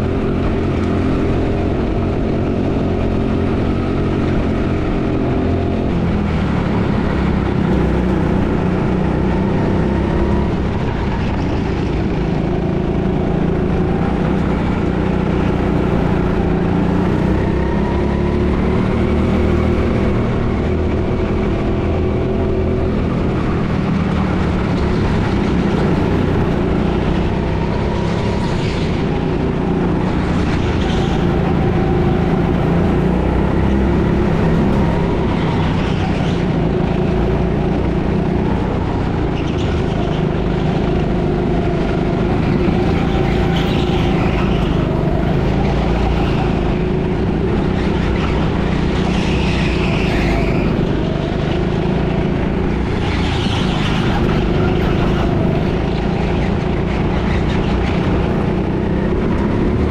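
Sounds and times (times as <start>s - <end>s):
go-kart engine: 0.0s - 59.9s.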